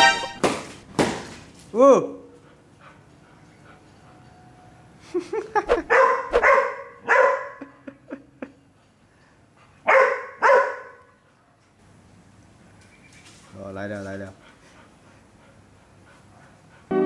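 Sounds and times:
dog barking and yipping: 0:05.7 - 0:07.6, 0:09.9 - 0:11.0.

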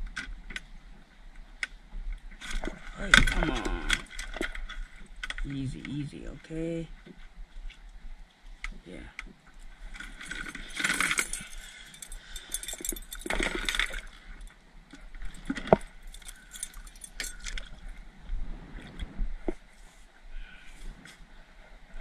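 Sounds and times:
rustling handling noise: 0:09.8 - 0:17.8
metallic clinks of hook: 0:10.4 - 0:14.0, 0:16.0 - 0:17.7.

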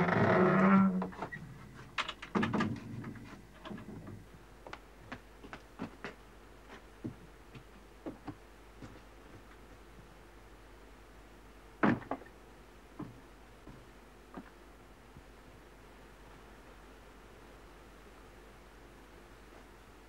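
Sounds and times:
wooden door clicks and knocks: 0:02.0 - 0:04.1, 0:11.8 - 0:12.3.

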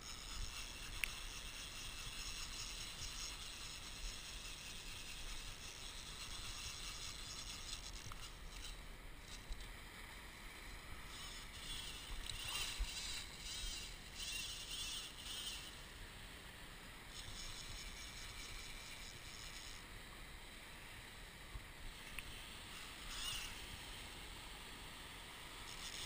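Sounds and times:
scratchy noise: 0:00.0 - 0:09.4.

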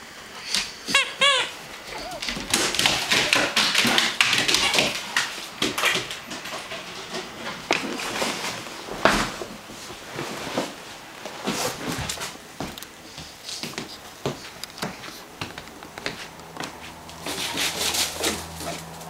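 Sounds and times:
squeaky toy squeaking: 0:00.9 - 0:03.3
puppy chewing toy: 0:00.9 - 0:06.6.

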